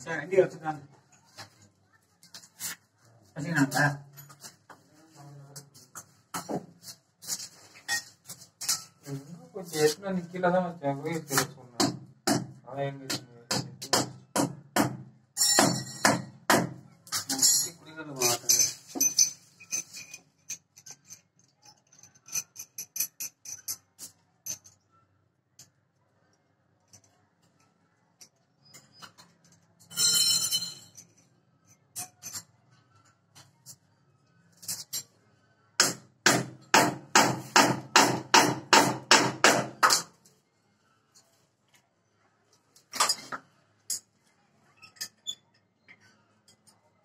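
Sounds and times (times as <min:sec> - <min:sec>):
hammer striking metal tool: 0:11.4 - 0:17.2, 0:35.8 - 0:40.1.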